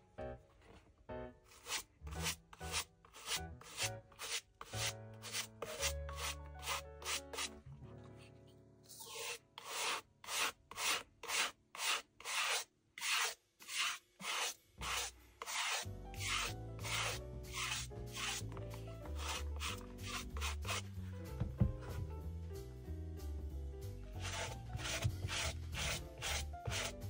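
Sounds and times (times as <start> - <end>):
brush stroking suede: 1.5 - 7.5, 9.0 - 21.0, 24.2 - 27.0.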